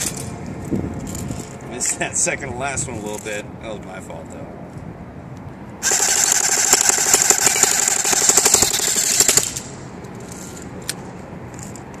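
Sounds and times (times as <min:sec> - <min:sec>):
airsoft gun firing full-auto: 0:05.8 - 0:09.8.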